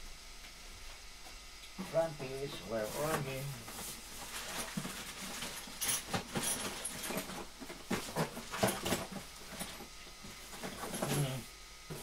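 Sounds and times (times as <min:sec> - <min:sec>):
tools and parts being rummaged: 0:02.6 - 0:12.0.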